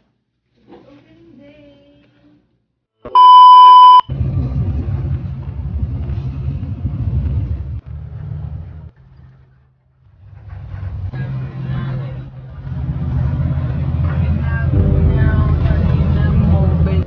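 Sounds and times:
loud electronic beep: 3.2 - 4.0
coach engine and road rumble: 4.1 - 9.3, 10.1 - 17.0.

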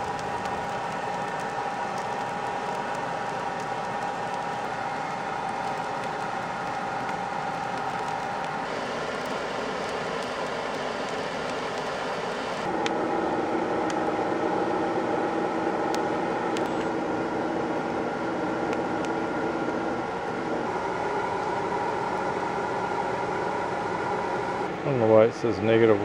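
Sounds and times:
embers crackling: 0.0 - 13.0
blower humming: 0.0 - 26.0.

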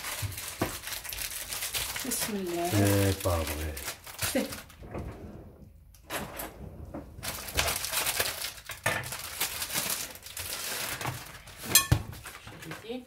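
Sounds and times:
rustling of packaging: 0.0 - 4.9, 7.1 - 13.0
kitchen items knocking: 11.6 - 12.9.

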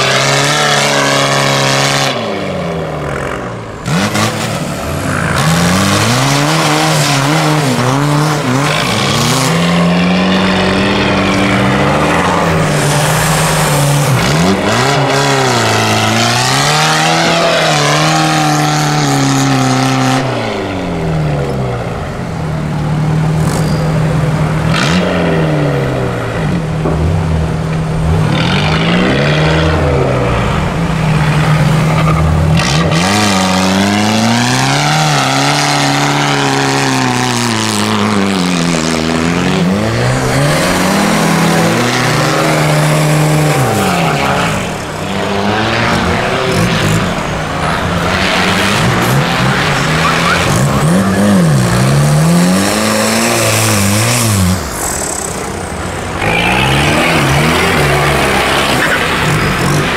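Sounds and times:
off-road engines revving hard: 0.0 - 59.9.

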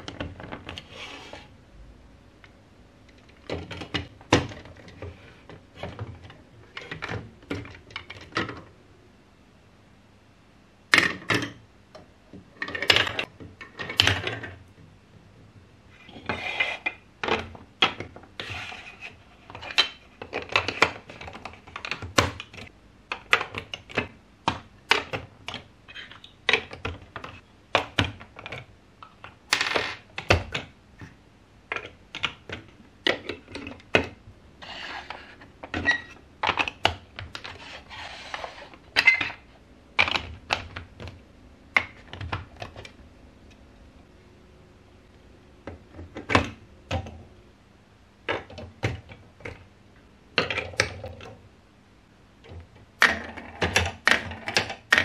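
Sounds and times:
plastic blocks clicking and knocking: 12.6 - 14.6, 19.4 - 30.8, 31.7 - 43.0, 50.3 - 51.4, 52.4 - 55.0.

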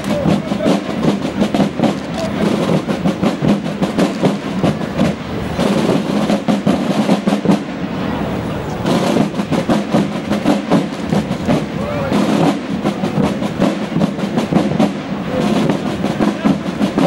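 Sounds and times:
military drums marching cadence: 0.0 - 17.0.

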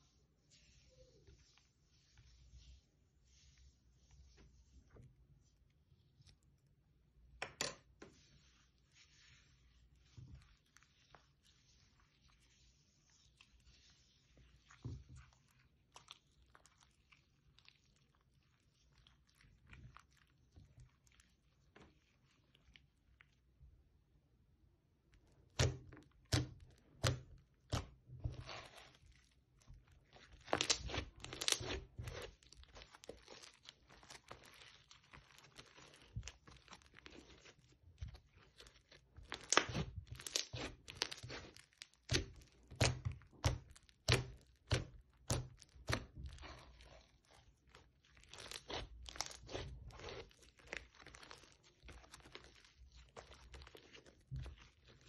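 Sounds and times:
crunchy slime crackling and snapping: 25.5 - 55.0.

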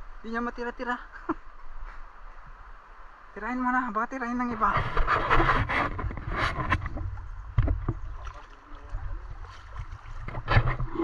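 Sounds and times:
camera handling knocks and rustles: 5.0 - 8.0.

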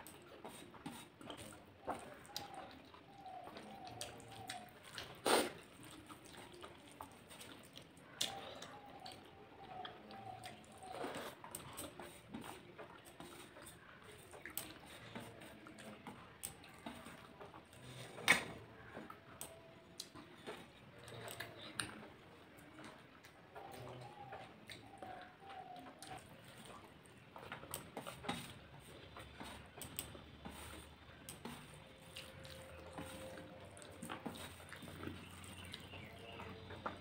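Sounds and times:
fingers squishing rice: 0.0 - 37.0
soft wet chewing: 0.0 - 37.0.

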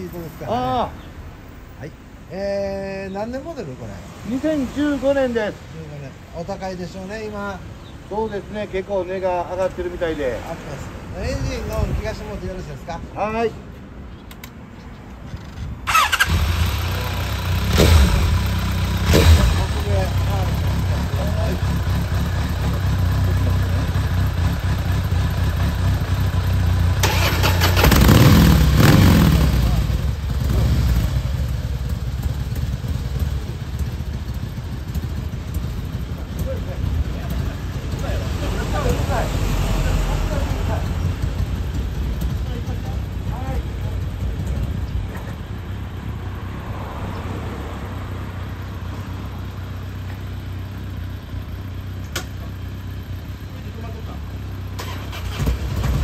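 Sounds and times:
motorcycle engine idling: 15.4 - 39.4, 40.0 - 46.3, 48.3 - 56.0
rough engine burst with crackles: 26.9 - 30.7.

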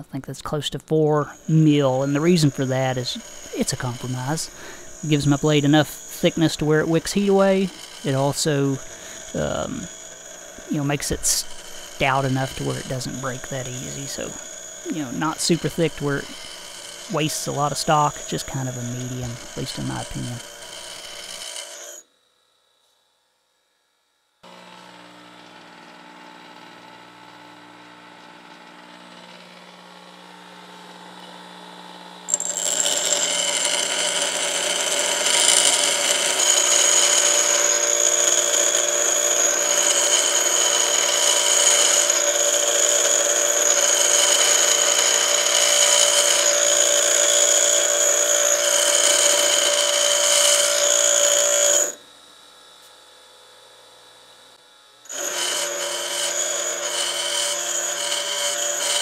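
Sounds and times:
steel grinding with high whine: 1.0 - 22.0, 32.2 - 52.0, 55.1 - 59.0
bench grinder humming: 1.1 - 22.6, 24.4 - 52.6, 54.6 - 59.0.

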